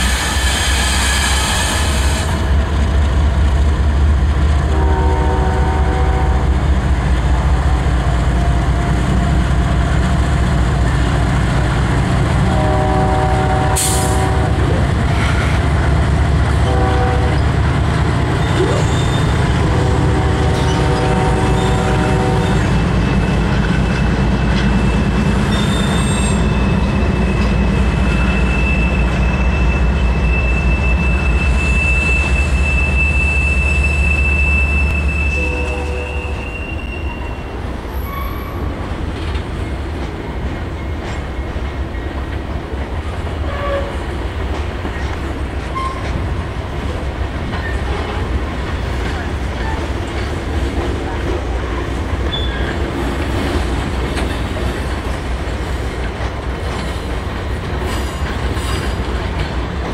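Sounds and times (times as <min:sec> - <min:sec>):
freight train rumbling past: 0:00.0 - 0:59.9
train horn blasts: 0:04.7 - 0:06.6, 0:12.4 - 0:14.6, 0:16.6 - 0:17.5, 0:19.6 - 0:22.8, 0:30.7 - 0:37.3, 0:43.4 - 0:44.0
high wheel squeal: 0:18.3 - 0:19.4, 0:24.7 - 0:38.8.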